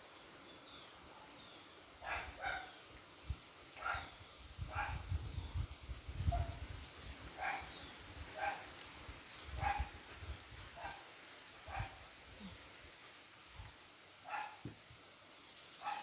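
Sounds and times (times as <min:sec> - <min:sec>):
dog barking: 0:02.0 - 0:02.7, 0:03.8 - 0:04.1, 0:07.4 - 0:07.8, 0:08.4 - 0:08.7, 0:09.6 - 0:09.9, 0:11.7 - 0:12.0, 0:14.3 - 0:14.6.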